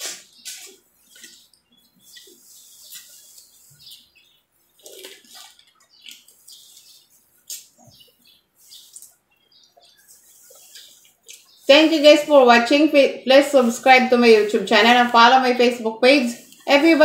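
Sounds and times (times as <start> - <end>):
wet chewing and sucking: 4.8 - 7.9, 9.9 - 11.7
lip smacks: 10.7 - 11.6.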